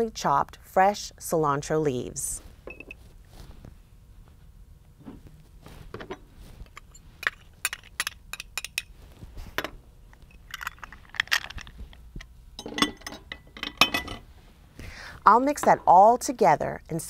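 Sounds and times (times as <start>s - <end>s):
metal spoon clinking on glass bowls: 12.6s - 14.2s.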